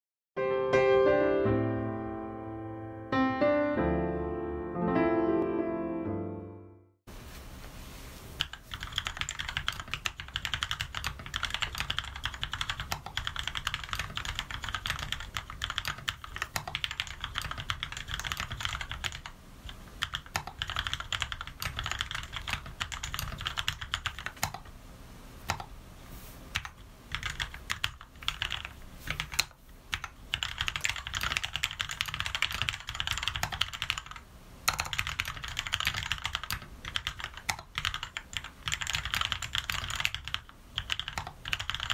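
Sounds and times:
mechanical keyboard typing: 0:08.4 - 0:24.7, 0:25.5 - 0:25.7, 0:26.5 - 0:41.9.

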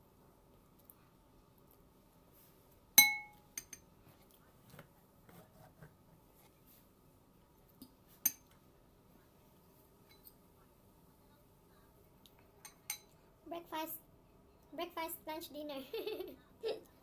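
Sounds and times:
fork clinking against glass bowl: 0:12.6 - 0:13.1.

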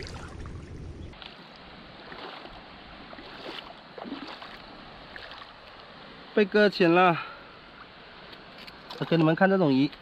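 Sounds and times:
low rumble: 0:00.0 - 0:01.2
shallow water: 0:00.0 - 0:10.0
small splashes and clicks: 0:08.3 - 0:10.0.

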